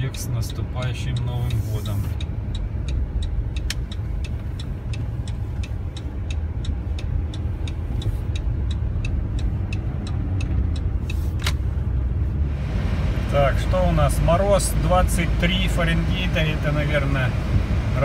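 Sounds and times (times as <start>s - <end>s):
car cabin rumble: 0.0s - 18.0s
turn signal ticking: 0.0s - 18.0s
turn signal cancel click: 0.4s - 12.0s.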